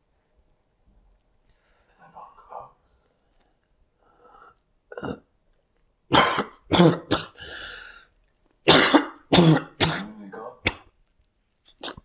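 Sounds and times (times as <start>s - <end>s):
man coughing: 6.1s - 7.4s, 8.7s - 10.9s.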